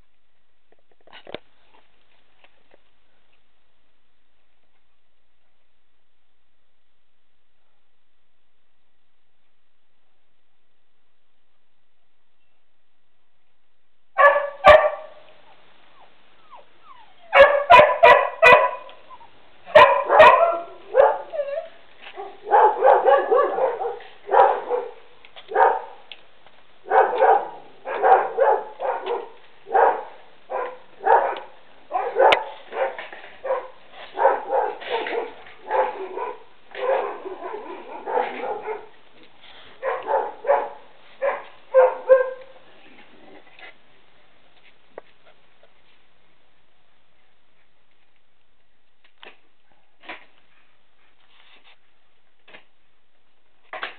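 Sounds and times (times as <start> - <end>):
dog barking: 14.2 - 15.2, 17.2 - 19.0, 19.7 - 21.6, 22.2 - 26.0, 26.8 - 39.0, 39.8 - 42.6.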